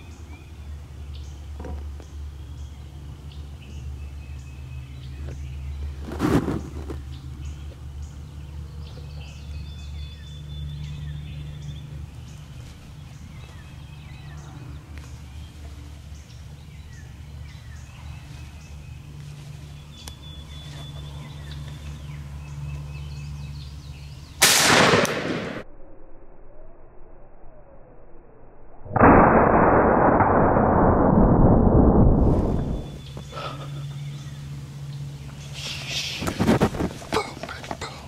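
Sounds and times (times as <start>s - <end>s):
steady low hum: 0.0s - 38.0s
loud shotgun blast: 24.4s - 25.6s, 29.0s - 33.0s
faint bird chirps: 32.5s - 36.4s.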